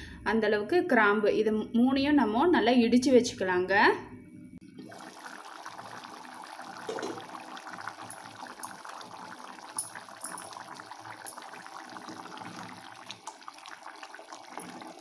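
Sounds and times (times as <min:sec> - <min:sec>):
curry bubbling in a pot: 0:04.8 - 0:15.0.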